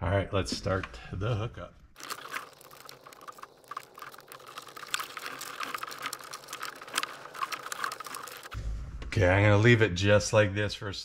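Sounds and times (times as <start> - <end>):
plastic connectors clicking and rattling: 2.0 - 8.6.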